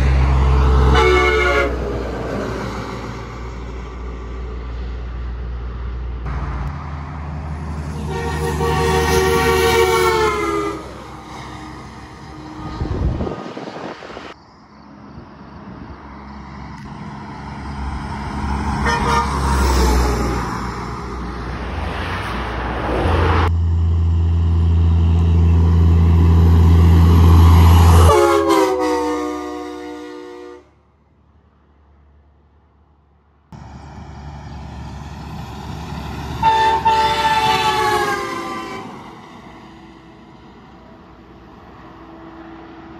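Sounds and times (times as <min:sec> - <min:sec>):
truck passing with engine rumble: 0:00.0 - 0:42.9
truck train horn: 0:00.5 - 0:02.1, 0:07.6 - 0:13.2, 0:18.6 - 0:20.2, 0:27.1 - 0:30.8, 0:36.4 - 0:39.2
short truck horn note: 0:00.9 - 0:01.8, 0:07.9 - 0:10.9, 0:28.0 - 0:30.7.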